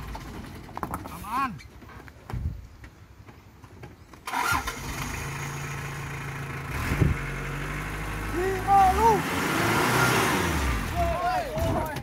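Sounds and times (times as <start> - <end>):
van engine starting and idling: 0.0 - 1.0, 4.2 - 12.0.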